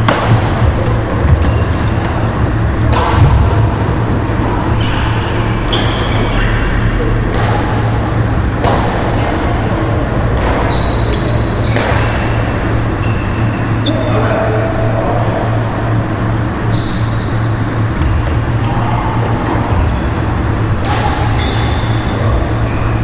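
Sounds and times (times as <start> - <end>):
rackets striking shuttlecock: 0.0 - 3.6, 7.3 - 9.1, 10.3 - 12.4, 20.4 - 22.1
low hum: 0.0 - 23.0
shoes squeaking on wooden court: 1.3 - 2.3, 4.6 - 6.9, 8.9 - 9.4, 10.4 - 12.2, 13.0 - 14.3, 19.4 - 20.6, 21.3 - 23.0.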